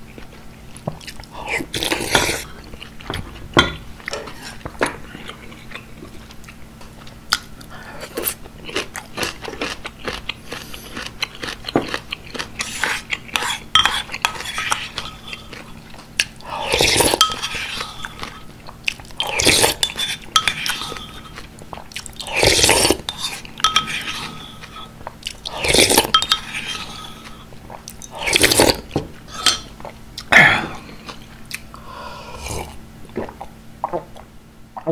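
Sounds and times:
crunchy chewing: 0:04.2 - 0:19.9
slurping soup from bowl: 0:22.2 - 0:24.8.

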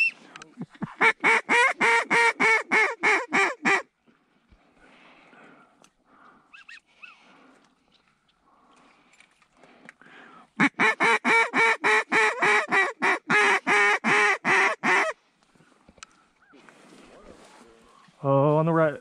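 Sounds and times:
duck call quacking: 0:00.8 - 0:03.9, 0:10.6 - 0:15.2.

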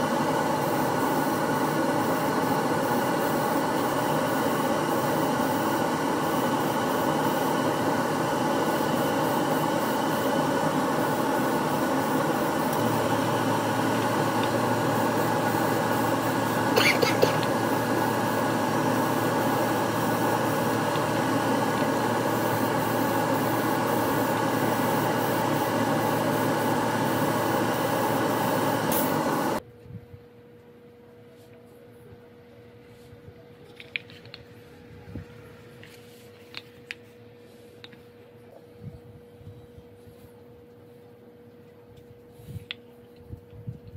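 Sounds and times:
airbrush air hiss: 0:00.0 - 0:29.6
exhaust fan whirring: 0:00.0 - 0:43.9.

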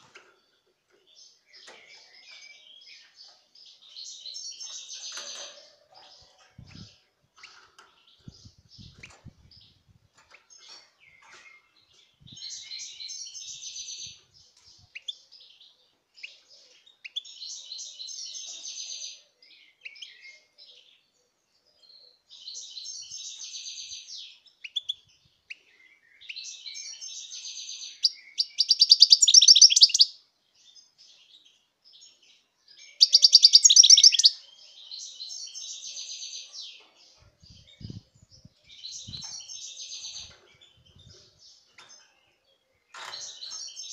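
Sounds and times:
bird trills: 0:28.1 - 0:30.1, 0:32.9 - 0:34.4
goldfinch twittering: 0:28.4 - 0:30.1, 0:33.0 - 0:34.3.

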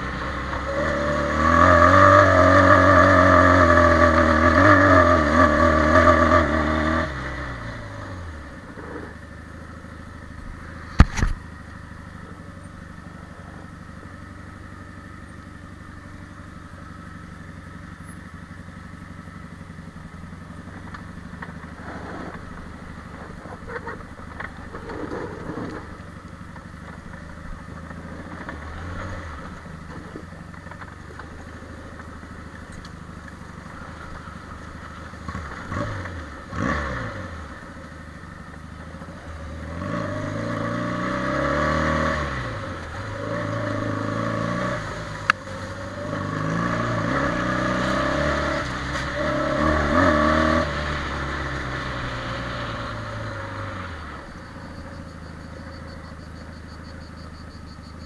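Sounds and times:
quad bike engine: 0:00.0 - 0:58.0.

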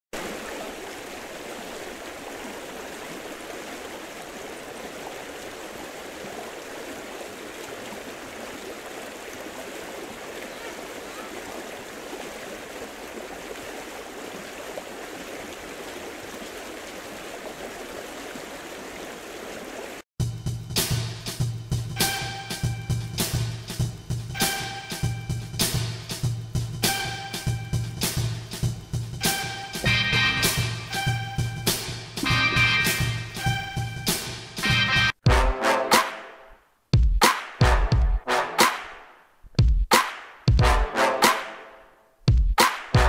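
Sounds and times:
flowing water rushing: 0:00.1 - 0:20.1.

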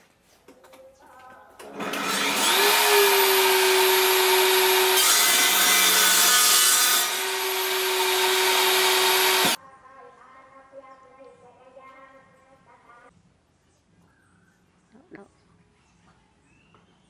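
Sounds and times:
saw blade cutting wood: 0:01.6 - 0:09.6
table saw whining: 0:01.6 - 0:09.6.

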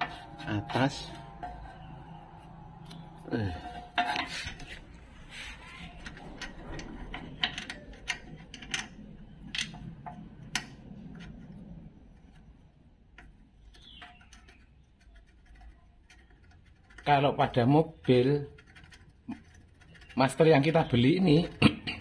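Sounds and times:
small metallic clicks and ticks: 0:05.8 - 0:17.3, 0:17.9 - 0:21.6.

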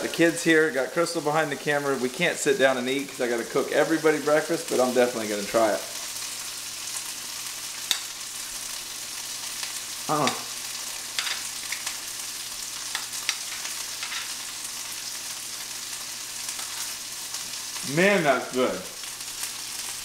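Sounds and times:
food sizzling in a pan: 0:00.0 - 0:20.0
person murmuring: 0:10.1 - 0:10.5.

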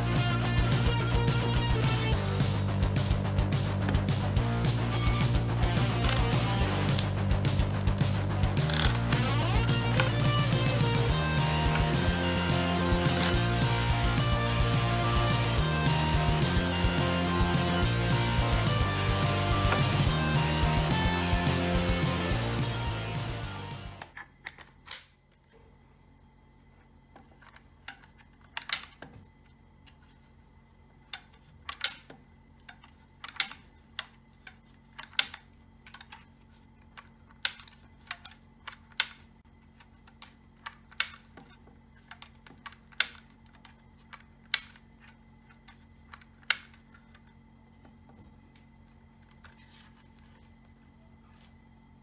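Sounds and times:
plastic clicks and snaps: 0:24.0 - 0:25.4, 0:31.1 - 0:36.3, 0:36.9 - 0:41.4, 0:42.0 - 0:47.4.

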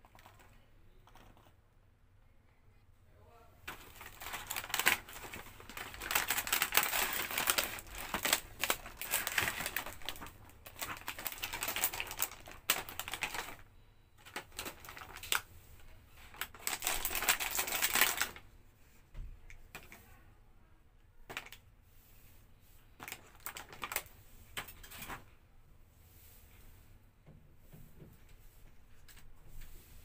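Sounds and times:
packaging crinkling and rustling: 0:00.0 - 0:01.5, 0:03.7 - 0:18.4, 0:21.3 - 0:21.6, 0:23.0 - 0:25.2.

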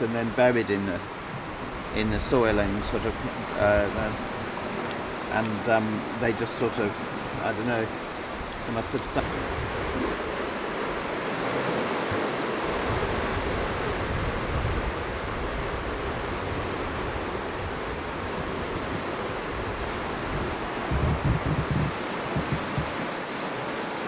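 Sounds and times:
sea surf washing on shore: 0:00.0 - 0:24.0
low bumps: 0:20.3 - 0:23.0.

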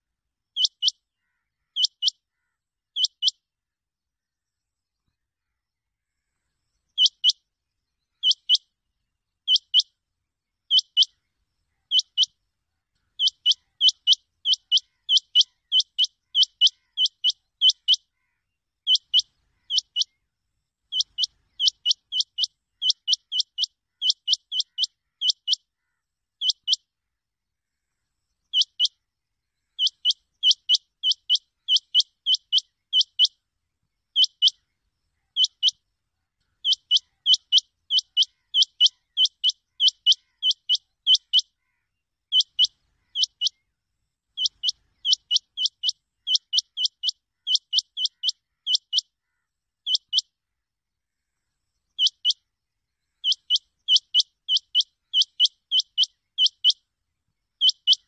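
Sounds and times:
quail calling: 0:00.6 - 0:03.3, 0:07.0 - 0:07.4, 0:08.2 - 0:08.6, 0:09.5 - 0:09.9, 0:10.7 - 0:12.4, 0:13.0 - 0:20.2, 0:20.9 - 0:26.8, 0:28.5 - 0:28.9, 0:29.7 - 0:33.3, 0:34.2 - 0:35.8, 0:36.4 - 0:43.6, 0:44.4 - 0:50.3, 0:52.0 - 0:52.4, 0:53.2 - 0:56.8, 0:57.6 - 0:58.0.

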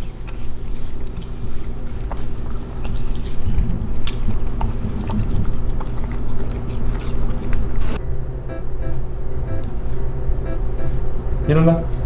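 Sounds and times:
dogs chewing watermelon: 0:00.0 - 0:08.0
steady low hum: 0:00.0 - 0:12.0.

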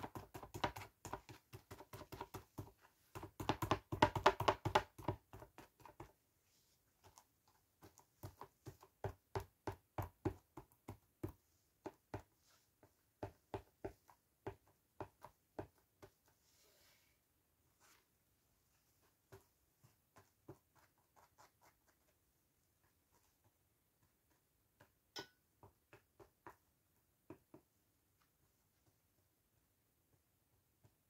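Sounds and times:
sponge tapping on phone case: 0:00.0 - 0:06.1.

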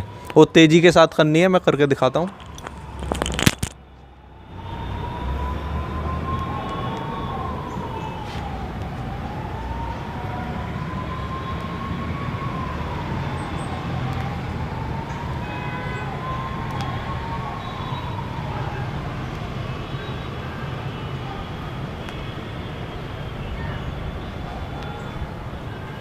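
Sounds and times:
siren wailing: 0:00.0 - 0:26.0.

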